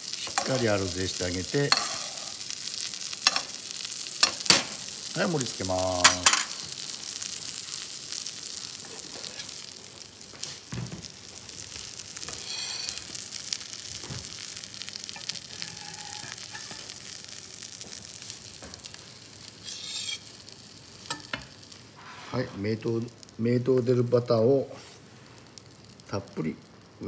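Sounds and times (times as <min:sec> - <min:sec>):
fish sizzling in a frying pan: 0:00.0 - 0:27.0.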